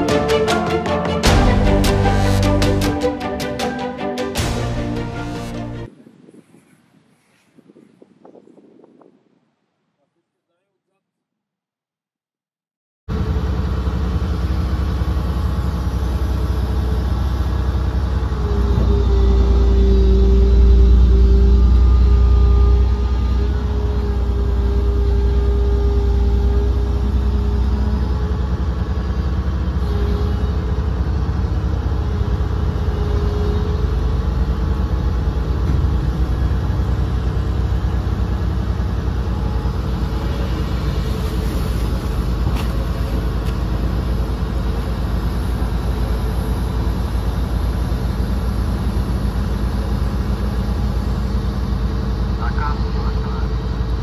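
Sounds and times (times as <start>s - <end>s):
excavator diesel engine running: 0.0s - 5.9s, 13.1s - 54.0s
hydraulic whine: 13.1s - 54.0s.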